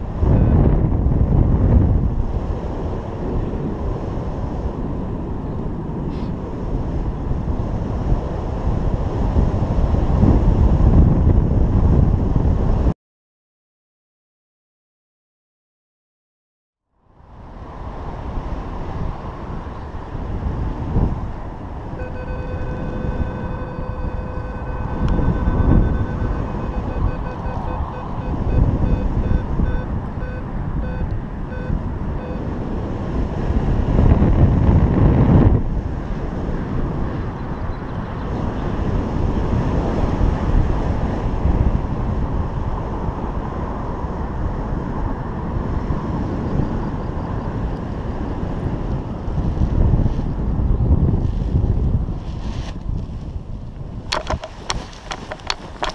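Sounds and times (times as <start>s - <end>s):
variometer buzzy electronic tone: 0.0s - 1.4s, 21.9s - 32.7s
airflow rushing over microphone: 0.0s - 12.9s, 17.0s - 46.6s, 47.5s - 55.9s.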